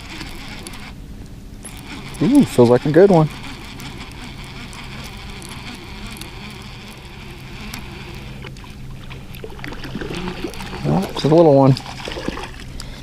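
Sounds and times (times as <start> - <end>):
outboard motor running: 0.0 - 13.0
water noise: 0.0 - 13.0
faint clicks: 3.3 - 9.8.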